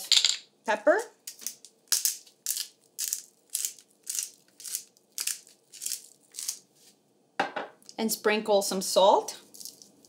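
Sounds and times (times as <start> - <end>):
pepper grinder crunching: 1.2 - 6.6, 9.5 - 10.0.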